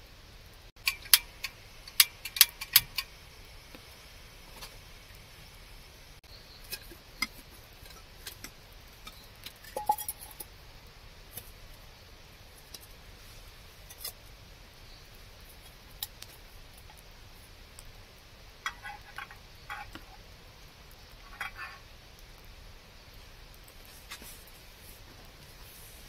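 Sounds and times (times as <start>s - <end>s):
metal cookware clinking: 0.8s - 3.1s, 6.7s - 10.5s, 18.6s - 20.2s, 21.2s - 21.8s.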